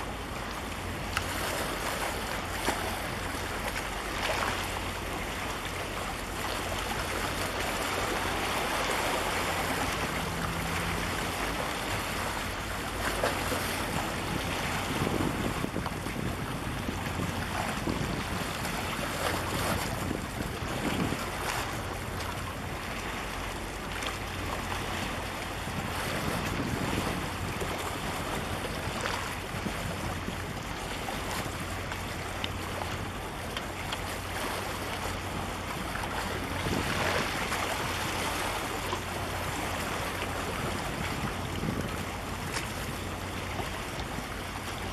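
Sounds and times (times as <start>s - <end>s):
water washing against shore: 0.0s - 44.9s
wind buffeting microphone: 8.1s - 22.9s, 24.4s - 33.2s, 35.3s - 44.9s.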